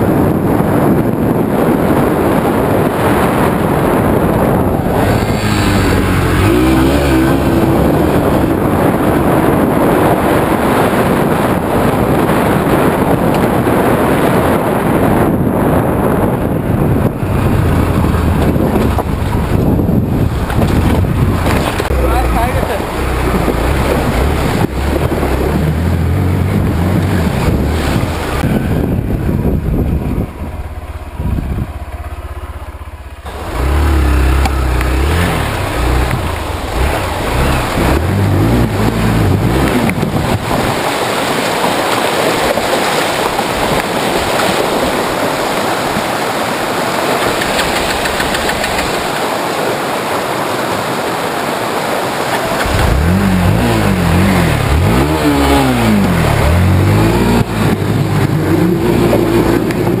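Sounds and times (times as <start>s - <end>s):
water rushing and splashing: 0.0s - 60.0s
motorbike engine revving: 2.3s - 11.2s, 16.6s - 40.9s, 52.2s - 60.0s.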